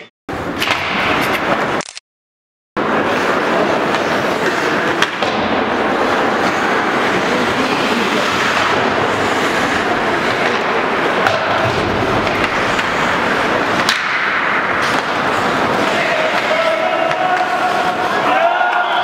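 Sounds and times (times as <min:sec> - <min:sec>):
skates scraping ice: 0:02.8 - 0:19.0
stick hitting puck: 0:10.3 - 0:13.0, 0:13.7 - 0:18.8.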